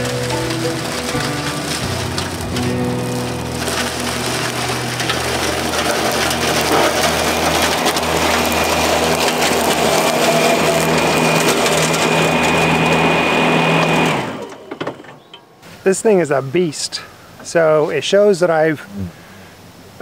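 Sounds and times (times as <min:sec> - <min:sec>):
cutting deck rushing: 0:00.0 - 0:15.2
riding mower motor whine: 0:00.0 - 0:15.5.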